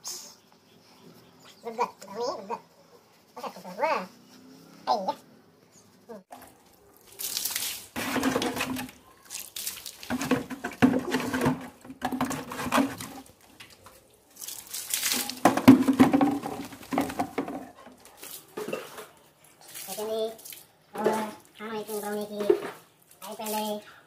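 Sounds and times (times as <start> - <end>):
water splashing on concrete: 6.3 - 23.8.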